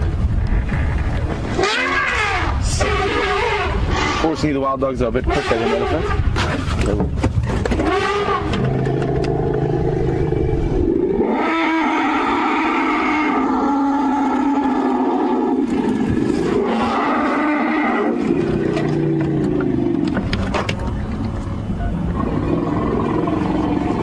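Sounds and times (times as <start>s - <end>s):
elephants trumpeting: 1.5s - 4.4s, 5.2s - 6.6s, 7.7s - 20.2s.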